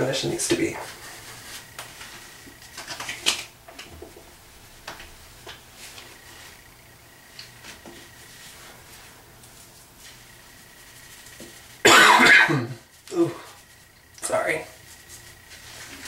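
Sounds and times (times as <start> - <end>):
faint electrical hum: 0.0 - 16.0.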